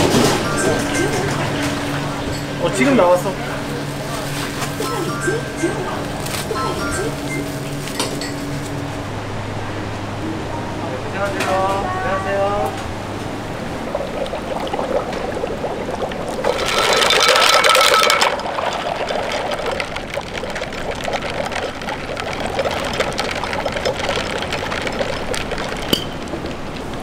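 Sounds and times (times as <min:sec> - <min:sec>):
kitchen background noise: 0:00.0 - 0:08.9
rushing liquid pouring: 0:13.3 - 0:27.0.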